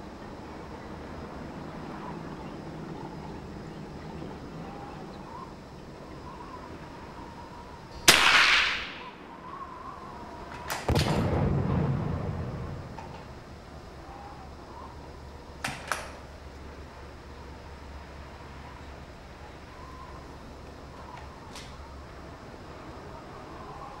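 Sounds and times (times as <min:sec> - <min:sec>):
rifle shot with echo: 0:08.1 - 0:09.0, 0:10.8 - 0:12.4.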